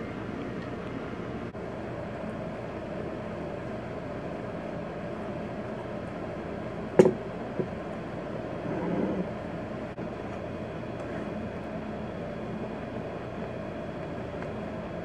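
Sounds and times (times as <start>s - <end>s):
room noise: 0.0s - 15.0s
mug set down on table: 7.0s - 7.2s.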